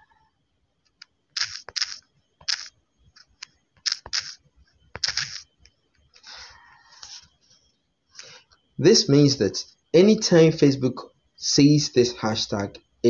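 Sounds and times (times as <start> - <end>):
fingers tapping touchscreen: 1.4 - 4.4, 5.0 - 5.4.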